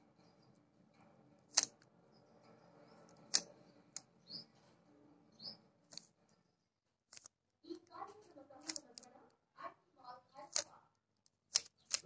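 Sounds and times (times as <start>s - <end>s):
plastic puzzle cube clacking: 1.4s - 1.9s, 3.2s - 4.1s, 7.1s - 7.4s, 8.6s - 9.1s, 10.5s - 12.0s.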